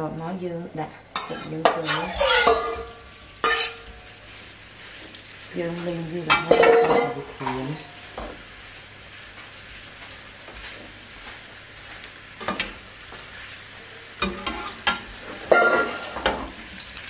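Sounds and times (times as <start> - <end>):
mushrooms sizzling in a wok: 0.0 - 17.0
metal spatula scraping a pan: 1.1 - 4.1, 6.3 - 8.3, 14.2 - 16.5.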